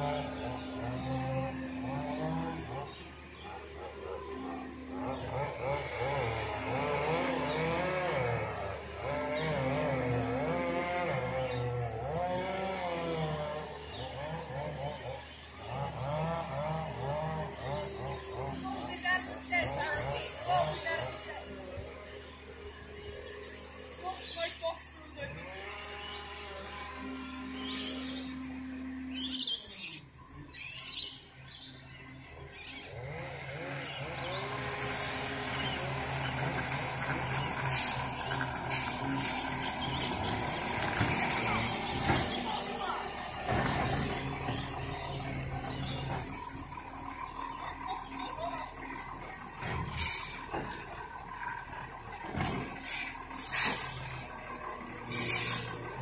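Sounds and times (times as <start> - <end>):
birds calling: 0.0 - 56.0
heavy truck engine: 0.0 - 56.0
high-pitched brake squeal: 34.2 - 42.6, 49.9 - 54.2, 55.0 - 55.8
air brakes hissing: 49.9 - 54.1.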